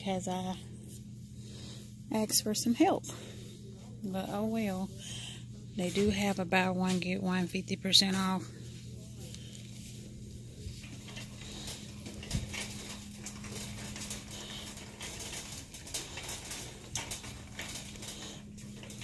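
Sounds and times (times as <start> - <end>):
steady low hum: 0.0 - 19.0
soft clicks and rustles: 8.1 - 19.0.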